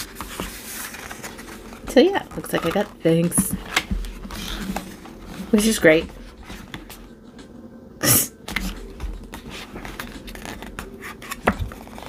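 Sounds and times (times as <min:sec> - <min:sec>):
paper rustles and clicks: 0:00.0 - 0:05.7, 0:08.5 - 0:12.0
photobook pages turning: 0:00.0 - 0:07.0, 0:08.5 - 0:12.0.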